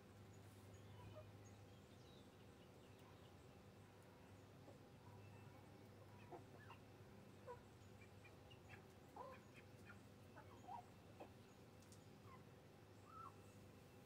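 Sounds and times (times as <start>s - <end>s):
chickens clucking softly: 0.6s - 1.6s, 4.0s - 13.8s.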